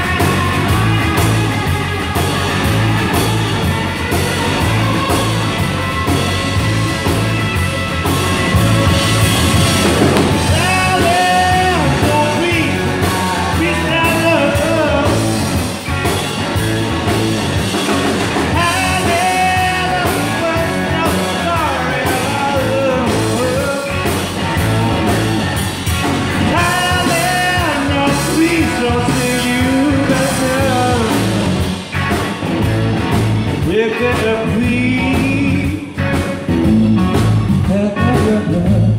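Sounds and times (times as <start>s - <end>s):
rock band playing: 0.0s - 38.9s
man singing: 10.2s - 15.6s, 18.5s - 24.3s, 26.4s - 31.6s, 33.6s - 36.5s, 37.6s - 38.9s.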